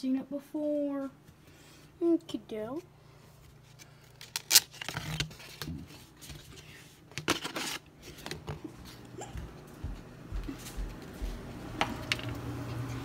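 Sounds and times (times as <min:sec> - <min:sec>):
paper plates scraping and rustling: 0:04.7 - 0:09.0.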